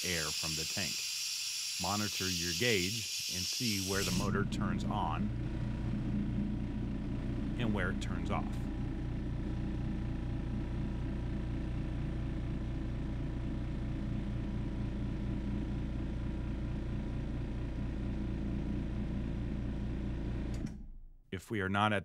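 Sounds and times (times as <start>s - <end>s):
air compressor running: 0.0s - 12.7s.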